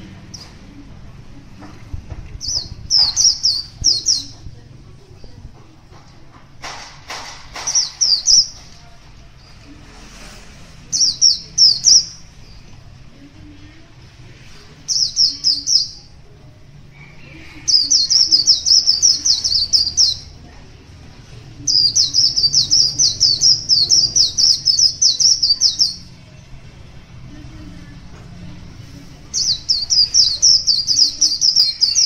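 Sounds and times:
bird twittering: 0:02.4 - 0:04.4, 0:07.6 - 0:08.6, 0:10.9 - 0:12.6, 0:14.9 - 0:16.1, 0:17.0 - 0:20.4, 0:21.6 - 0:26.1, 0:29.3 - 0:32.0.

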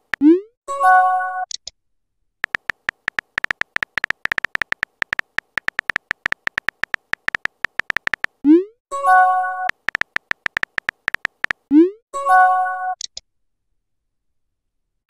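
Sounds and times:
phone keyboard typing clicks: 0:02.4 - 0:08.4, 0:09.6 - 0:11.7.

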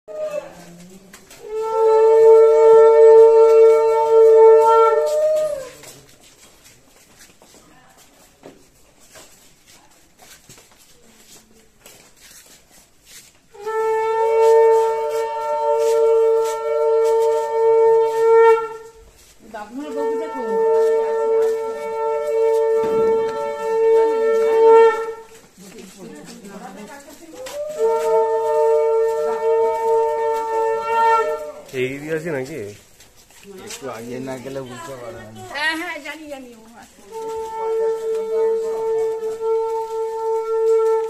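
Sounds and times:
conch shell blast: 0:01.4 - 0:05.8, 0:13.5 - 0:19.0, 0:19.8 - 0:25.4, 0:27.5 - 0:32.0, 0:37.1 - 0:41.0.

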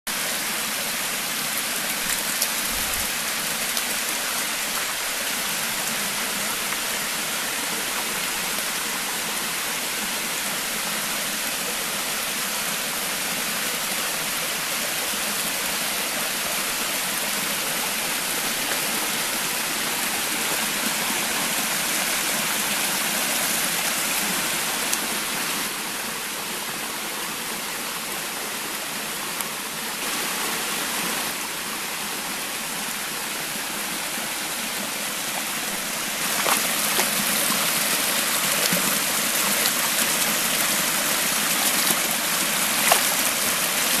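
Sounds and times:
water running over rocks: 0:00.1 - 0:44.0.

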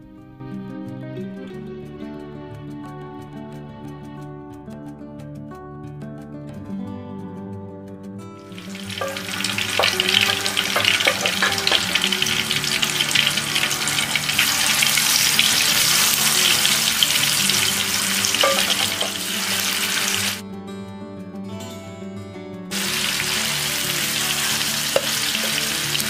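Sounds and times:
soft background music: 0:00.0 - 0:26.0
fish sizzling in hot oil: 0:08.5 - 0:20.4, 0:22.7 - 0:26.0.

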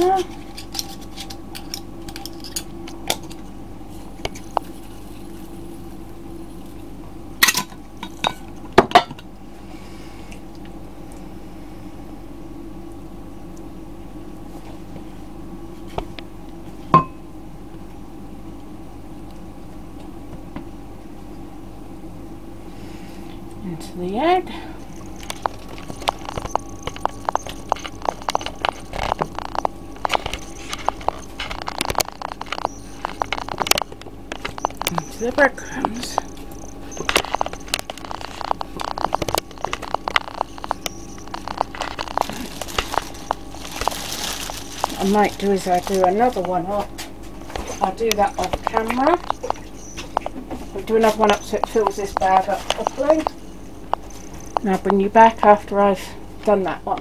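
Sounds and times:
steady background hum: 0:00.0 - 0:57.0
breadcrumbs crackling: 0:03.4 - 0:08.2, 0:24.7 - 0:55.6.

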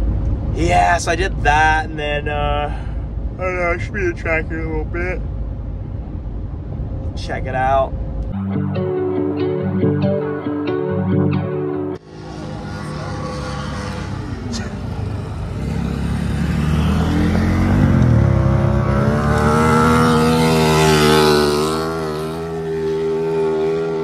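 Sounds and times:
race car engines: 0:12.0 - 0:24.0.

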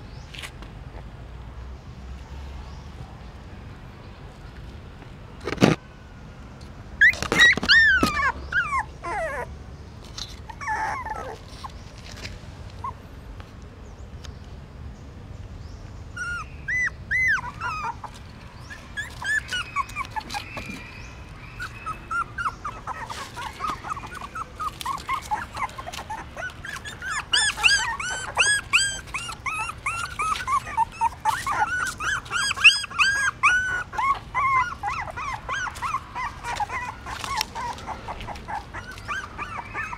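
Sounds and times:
puppies whimpering: 0:07.0 - 0:09.6, 0:10.3 - 0:11.9, 0:16.1 - 0:39.9.

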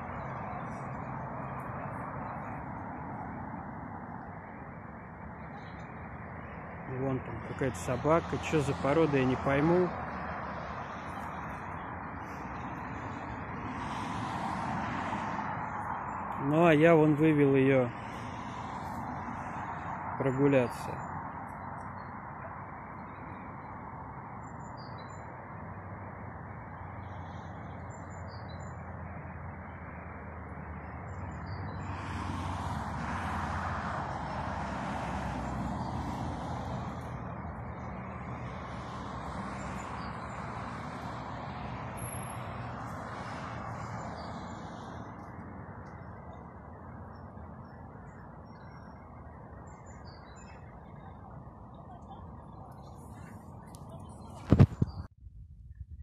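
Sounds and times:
road traffic noise: 0:00.0 - 0:55.1
vehicle passing: 0:25.4 - 0:47.5.

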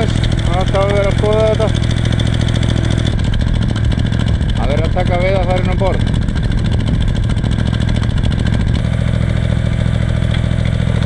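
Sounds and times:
small engine idling: 0:00.0 - 0:11.0.

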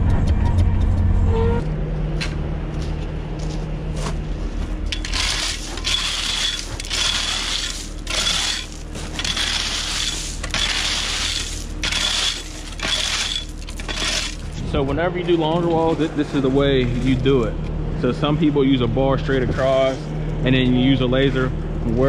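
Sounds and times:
low hum: 0:00.0 - 0:22.0
hand tool scraping gravel: 0:04.9 - 0:14.9.

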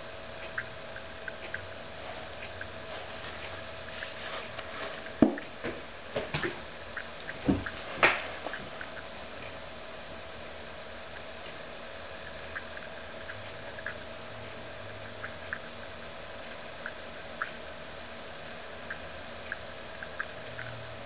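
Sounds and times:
gas bubbles popping in liquid: 0:05.0 - 0:09.6, 0:11.0 - 0:16.0, 0:16.6 - 0:21.0.

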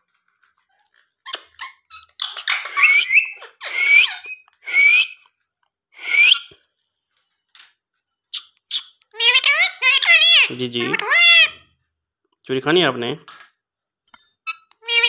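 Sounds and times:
parakeet chattering calls: 0:01.3 - 0:04.5, 0:08.3 - 0:11.6, 0:14.5 - 0:15.0.

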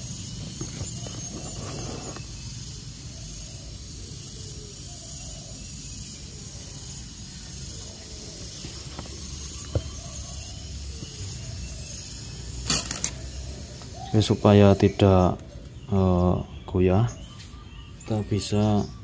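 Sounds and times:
rustling and crackling of dry cocopeat: 0:12.6 - 0:13.3.

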